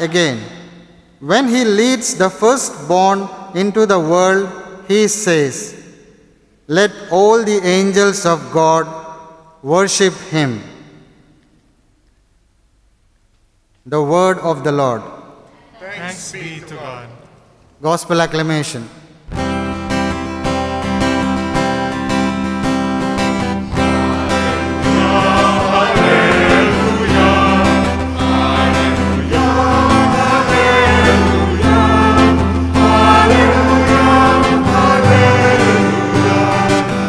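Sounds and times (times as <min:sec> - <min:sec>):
church choir singing: 0:15.6 - 0:17.5, 0:23.3 - 0:37.0
instrumental accompaniment: 0:19.4 - 0:37.0.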